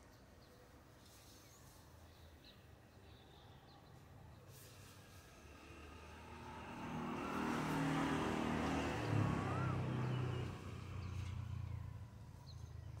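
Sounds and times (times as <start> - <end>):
vehicle passing on road: 4.4 - 13.0.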